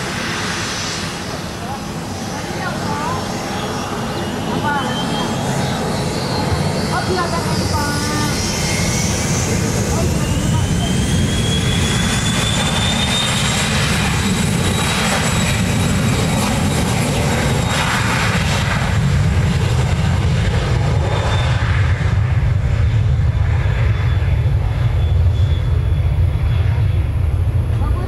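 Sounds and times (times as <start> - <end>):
jet engines running: 0.0 - 28.0.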